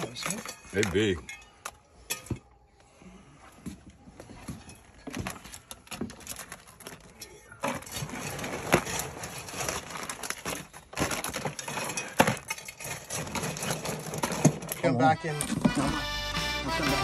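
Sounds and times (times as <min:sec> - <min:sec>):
shells clattering into a cooler: 0:04.8 - 0:16.0.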